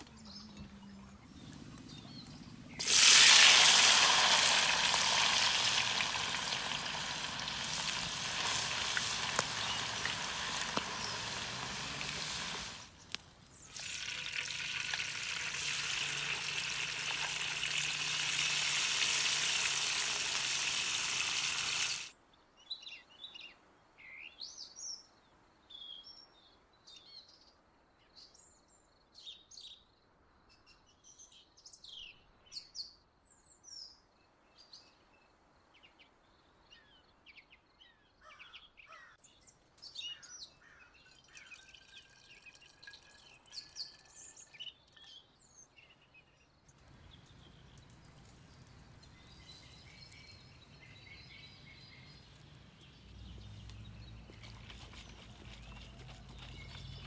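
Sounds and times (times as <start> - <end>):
food sizzling in hot oil: 2.8 - 13.0, 13.6 - 22.1
birds chirping and whistling: 49.0 - 57.0.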